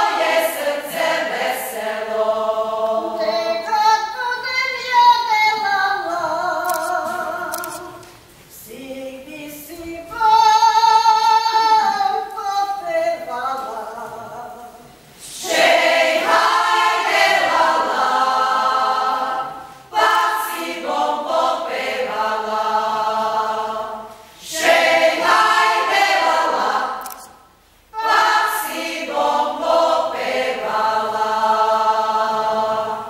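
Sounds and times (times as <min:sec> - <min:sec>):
choir singing unaccompanied: 0:00.0 - 0:04.4, 0:15.2 - 0:27.0, 0:27.9 - 0:33.0.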